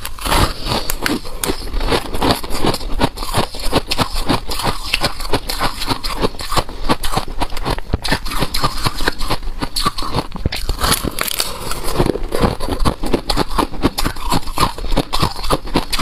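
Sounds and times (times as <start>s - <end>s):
chewing frost crunching: 0.0s - 16.0s.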